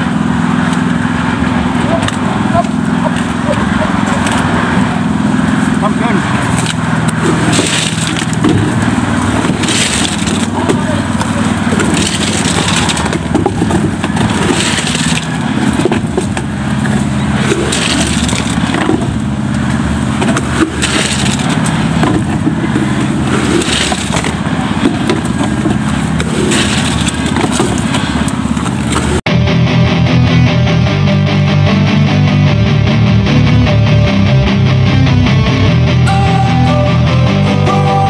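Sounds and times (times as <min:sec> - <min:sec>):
small engine running: 0:00.0 - 0:29.2
buckets scraping and knocking: 0:06.5 - 0:29.2.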